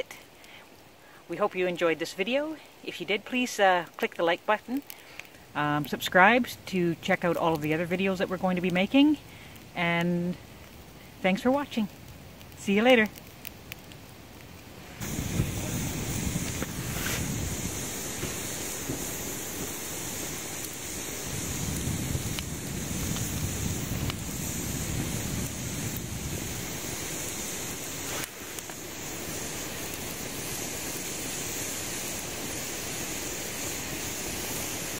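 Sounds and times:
faint fire crackles: 0:00.0 - 0:34.9
roar of fire flames: 0:04.7 - 0:34.9.

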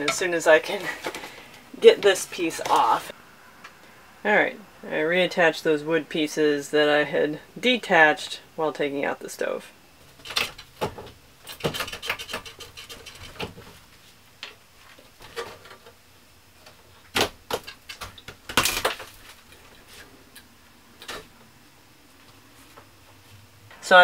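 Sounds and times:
wooden pieces knocking and scraping: 0:00.0 - 0:01.5, 0:10.2 - 0:13.8, 0:17.1 - 0:20.1.

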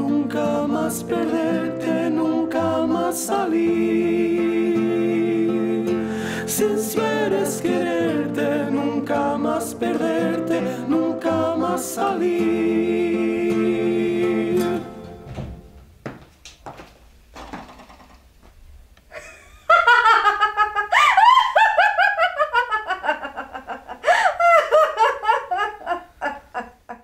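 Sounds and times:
woman laughing loudly: 0:19.1 - 0:27.0.

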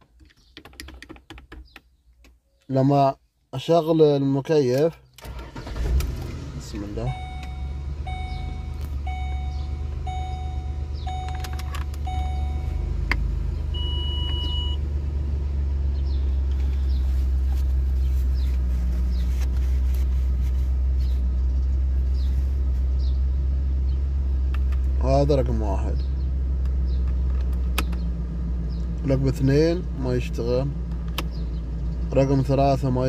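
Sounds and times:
car engine idling hum: 0:05.1 - 0:33.0
single higher beep: 0:07.1 - 0:12.8, 0:13.8 - 0:14.8
dashboard warning chime: 0:07.1 - 0:13.0, 0:13.7 - 0:14.8.

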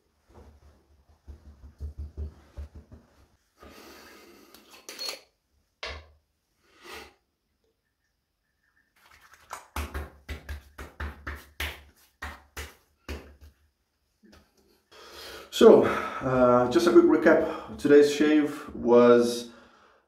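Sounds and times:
hands slapping wet skin: 0:09.0 - 0:14.6.

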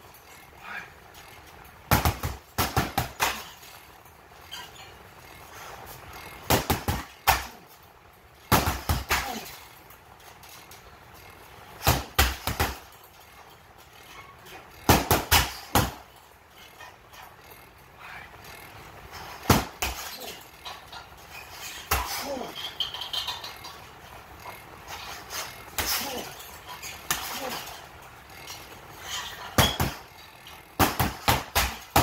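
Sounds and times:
sticks striking a heavy bag: 0:08.5 - 0:09.5, 0:11.8 - 0:12.8, 0:14.9 - 0:16.0, 0:19.4 - 0:20.0, 0:30.8 - 0:32.0.

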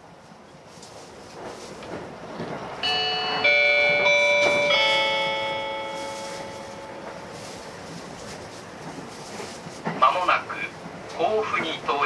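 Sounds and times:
train running noise: 0:00.0 - 0:12.0
bell-like announcement chime: 0:02.8 - 0:07.4.

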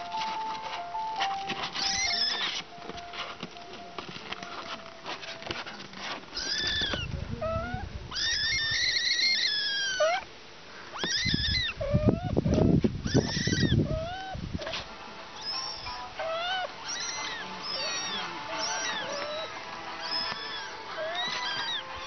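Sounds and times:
kitten meowing: 0:01.8 - 0:02.6, 0:06.4 - 0:10.3, 0:10.9 - 0:14.7, 0:15.4 - 0:22.0.

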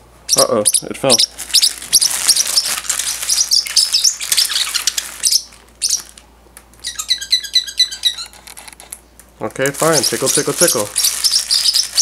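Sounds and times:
parrotlet chirping: 0:00.3 - 0:06.2, 0:06.8 - 0:08.4, 0:09.8 - 0:12.0
plastic bag crinkling: 0:01.3 - 0:06.3, 0:09.5 - 0:12.0.

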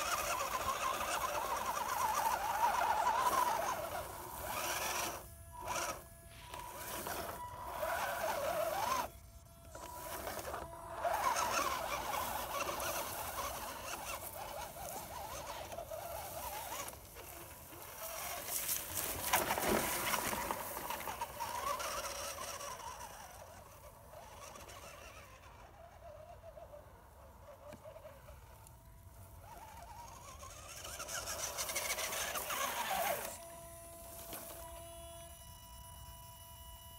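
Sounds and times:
electric motor and gears whining: 0:00.0 - 0:36.9
faint steady hum: 0:00.0 - 0:36.9.

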